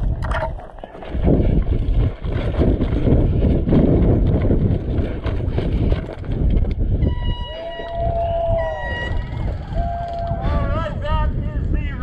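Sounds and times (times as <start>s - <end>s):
camera jostling rumble: 0.0s - 7.1s, 9.0s - 11.1s
footsteps running on dirt: 0.0s - 7.1s.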